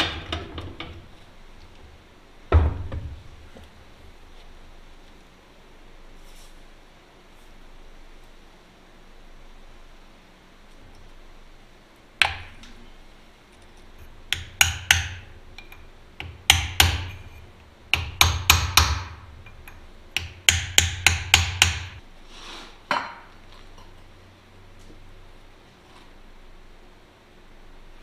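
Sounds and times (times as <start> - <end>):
hammer striking steel: 14.3 - 22.0.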